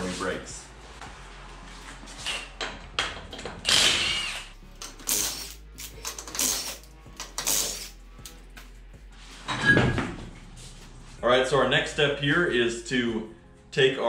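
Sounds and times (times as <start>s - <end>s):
impact wrench spinning lug nuts: 3.1s - 8.0s.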